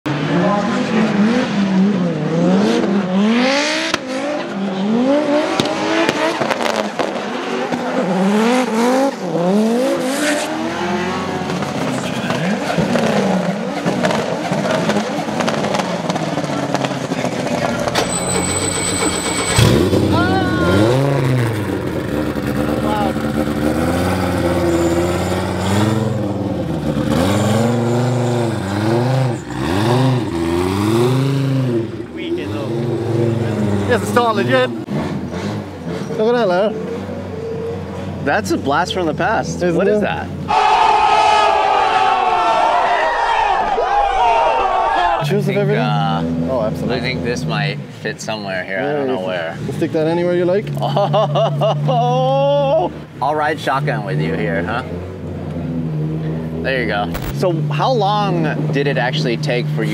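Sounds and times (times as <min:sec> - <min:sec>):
car engines revving: 0:00.1 - 0:42.6, 0:44.2 - 0:59.9
tyres screeching: 0:17.6 - 0:21.4.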